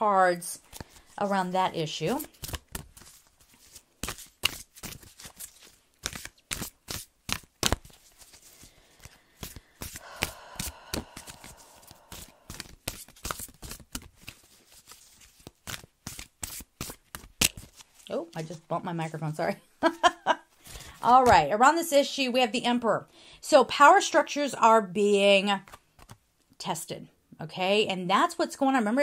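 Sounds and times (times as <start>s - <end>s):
cards being shuffled: 0.6s - 1.3s, 2.0s - 18.7s, 25.6s - 26.2s.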